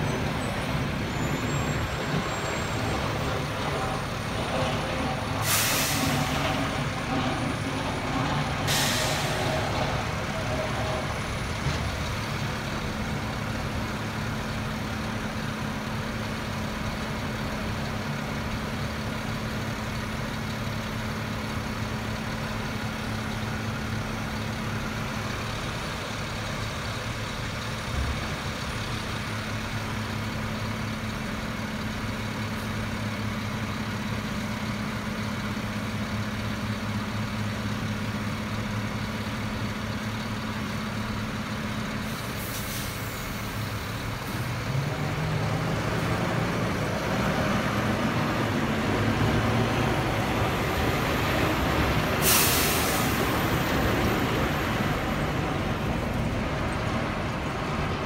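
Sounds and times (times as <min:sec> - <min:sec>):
snow plow scraping street: 0:00.0 - 0:58.0
truck engine drone: 0:00.0 - 0:58.0
short hiss: 0:05.4 - 0:06.2.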